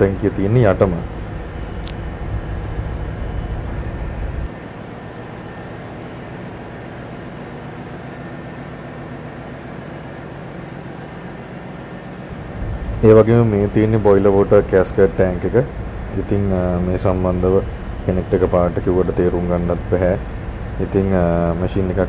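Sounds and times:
engine-room machinery hum: 0.0s - 22.0s
deep low rumble: 12.6s - 16.5s.

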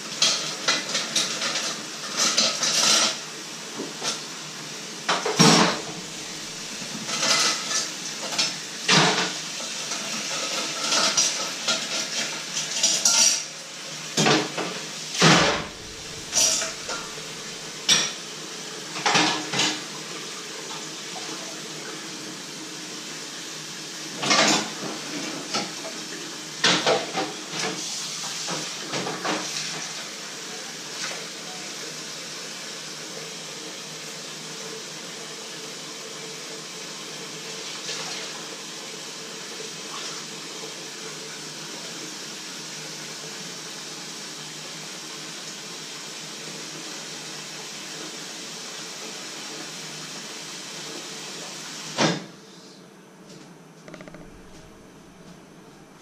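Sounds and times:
tap water running: 0.0s - 22.5s
dishes and cutlery clattering: 10.8s - 13.5s, 15.2s - 18.2s
sharp knocks: 53.9s - 55.4s.

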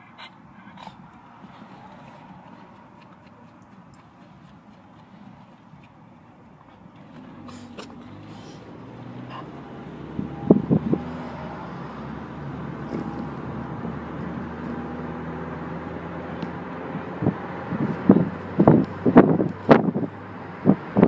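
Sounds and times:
car engine hum inside cabin: 0.0s - 21.0s.

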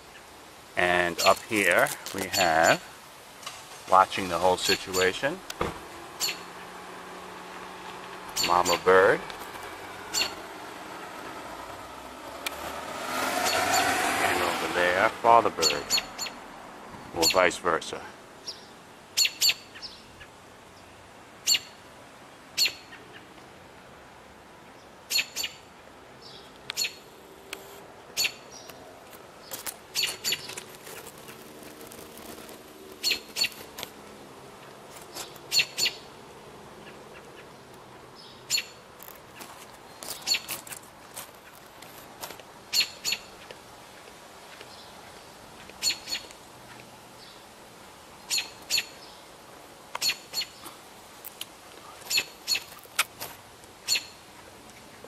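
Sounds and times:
robin chirping: 2.3s - 2.8s, 4.6s - 12.4s, 15.6s - 16.4s, 18.4s - 20.1s, 22.6s - 22.9s, 25.1s - 25.6s, 26.2s - 27.0s, 28.2s - 28.8s, 29.4s - 31.2s, 33.0s - 33.7s, 35.1s - 36.1s, 38.2s - 38.8s, 39.8s - 40.6s, 42.7s - 43.4s, 45.8s - 46.3s, 48.2s - 49.2s, 50.0s - 50.8s, 52.1s - 52.8s, 53.8s - 54.2s.

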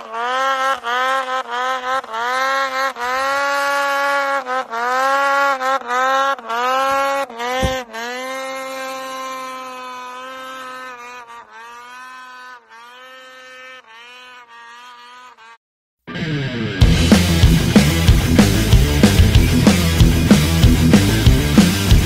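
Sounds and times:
snowmobile engine revving: 0.0s - 15.6s, 16.8s - 22.0s
thump: 7.6s - 7.8s.

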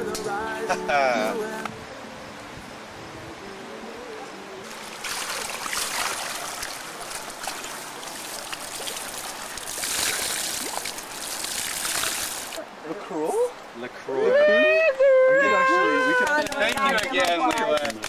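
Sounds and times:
stream water flowing: 0.0s - 17.8s
cloth dunked and wrung in water: 4.7s - 12.6s.

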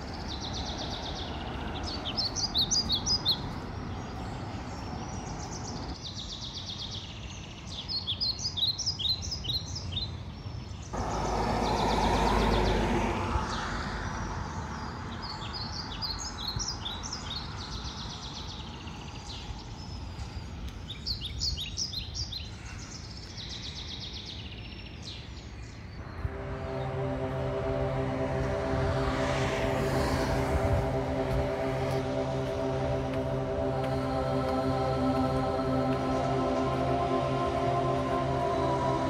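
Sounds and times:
small birds chirping: 0.0s - 12.7s
outdoor background noise: 0.0s - 39.0s
vehicle passing: 11.0s - 16.4s, 26.0s - 39.0s.

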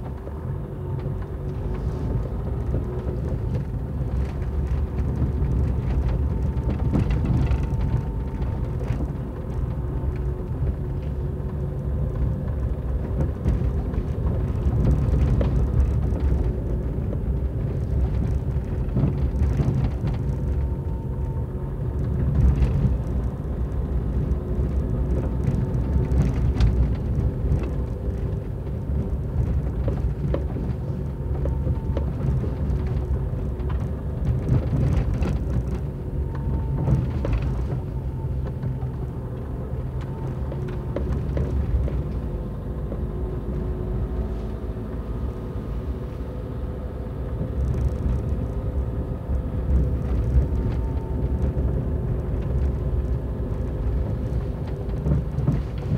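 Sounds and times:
car engine and tyre rumble: 0.0s - 55.9s
stones clicking under wheels: 2.6s - 20.9s.

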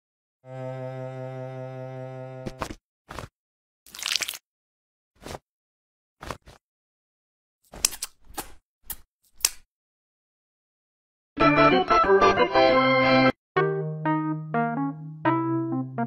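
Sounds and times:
cartoon eating sounds: 3.9s - 4.4s
organ music: 11.4s - 16.0s.

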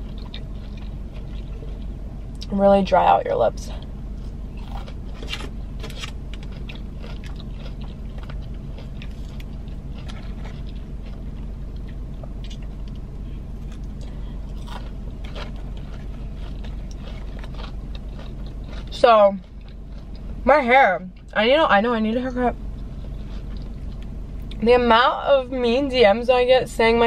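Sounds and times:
person chewing food: 0.0s - 2.5s, 3.8s - 20.4s, 22.7s - 24.6s
low hum: 0.0s - 27.0s
soft crunches: 4.2s - 20.4s.

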